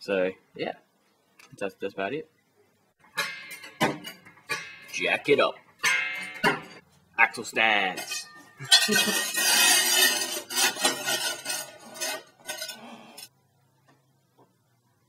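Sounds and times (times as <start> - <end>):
metal jack clanking and rattling: 8.0 - 13.3.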